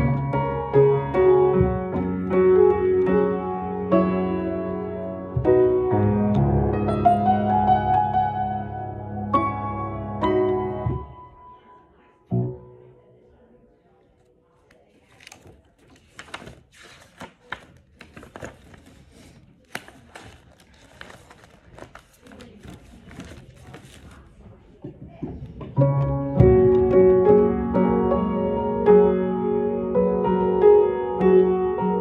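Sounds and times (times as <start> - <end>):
piano playing: 0.0 - 11.7, 25.8 - 32.0
sheet music pages rustling: 14.8 - 24.5.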